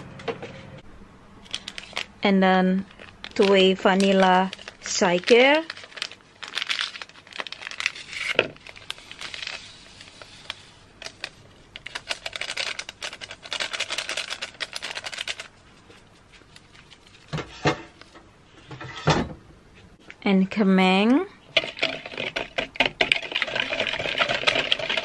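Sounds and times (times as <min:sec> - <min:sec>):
paper sachets tearing and crinkling: 0:01.4 - 0:02.2, 0:02.8 - 0:15.6.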